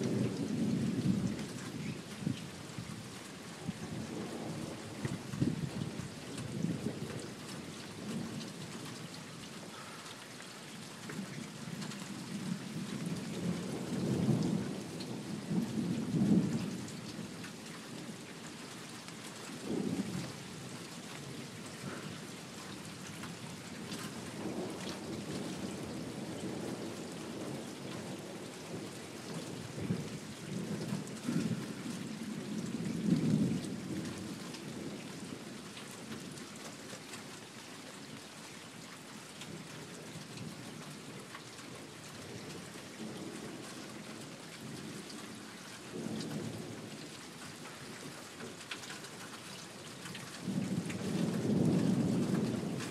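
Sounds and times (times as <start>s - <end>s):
steady rain falling: 0.0s - 52.9s
thunder rumbling: 12.4s - 17.4s, 19.6s - 20.4s, 21.2s - 22.3s, 23.4s - 35.0s, 50.4s - 52.9s.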